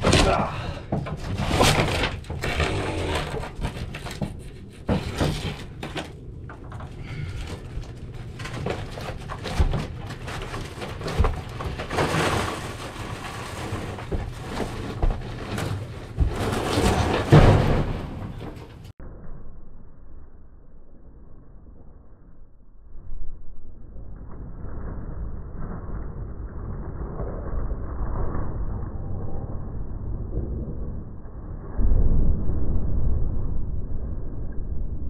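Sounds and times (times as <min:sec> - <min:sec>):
knocks and clatter of boards: 0:00.0 - 0:18.9.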